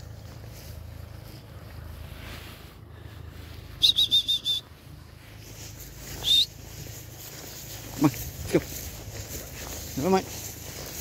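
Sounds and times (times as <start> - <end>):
person whistling: 3.8 - 4.7, 6.2 - 6.6.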